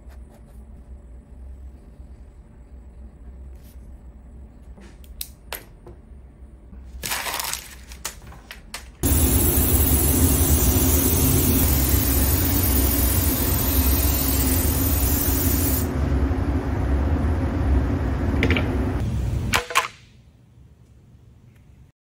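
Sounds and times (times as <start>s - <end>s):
airbrush spraying hiss: 9.0s - 15.9s
air compressor humming: 9.0s - 19.2s.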